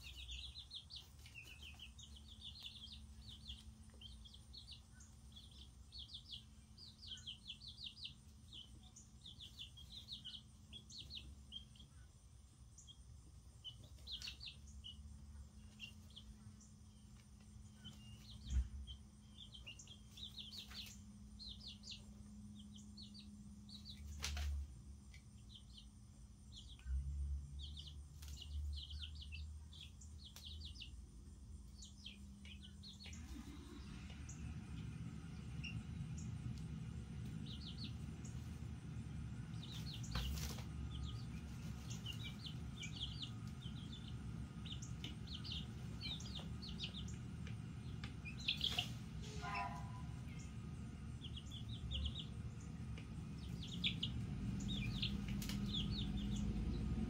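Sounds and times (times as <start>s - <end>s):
chicks peeping: 0.0s - 57.0s
low steady hum: 0.0s - 57.0s.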